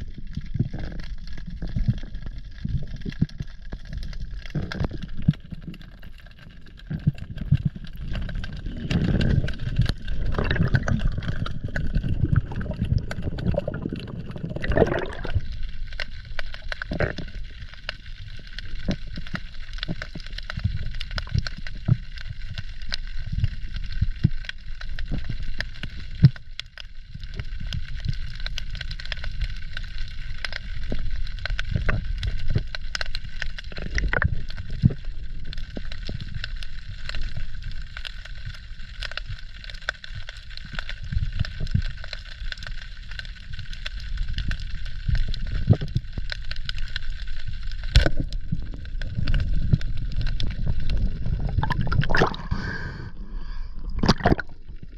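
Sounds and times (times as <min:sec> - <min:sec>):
muffled underwater rumble: 0:00.0 - 0:54.9
underwater clicks and knocks: 0:00.4 - 0:18.0, 0:30.4 - 0:36.2, 0:47.8 - 0:52.6, 0:53.9 - 0:54.9.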